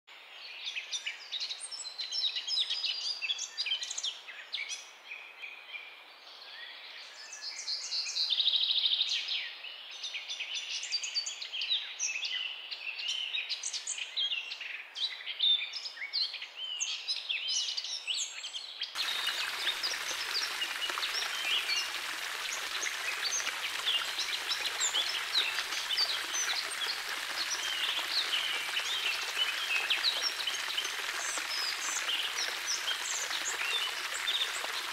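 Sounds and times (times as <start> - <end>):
small birds chirping and singing: 0.4 - 34.9
water splashing over pebbles: 19.0 - 34.9.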